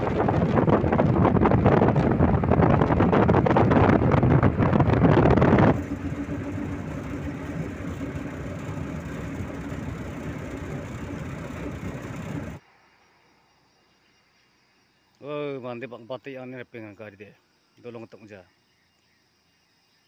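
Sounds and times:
wind buffeting microphone: 0.0 - 12.6
vehicle running and road noise: 0.0 - 12.7.

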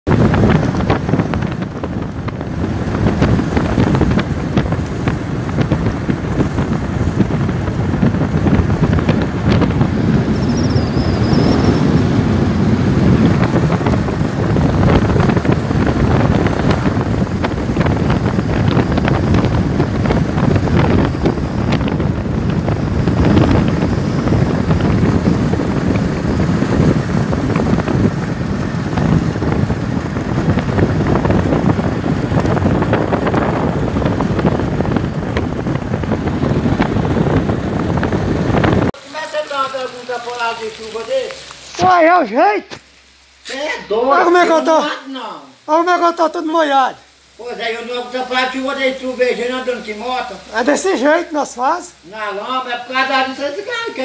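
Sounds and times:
wind buffeting microphone: 0.0 - 39.0.

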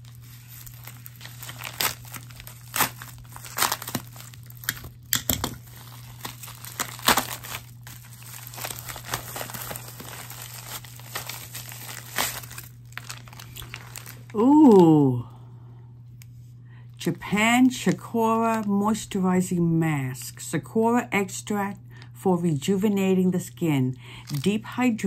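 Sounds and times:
plastic packaging crinkling: 0.0 - 15.0, 17.0 - 19.2, 24.0 - 25.0
steady low hum: 0.0 - 25.0.

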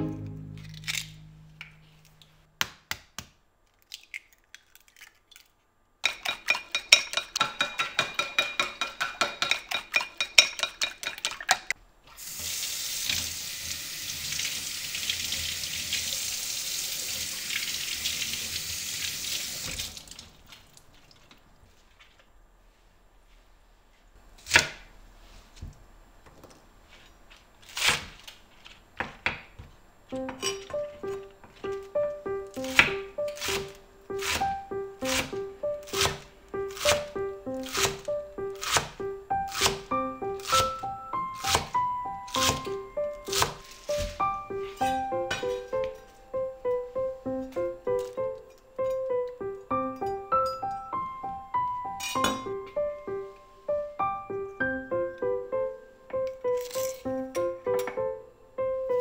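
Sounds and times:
kitchen tap running water: 12.2 - 20.5.

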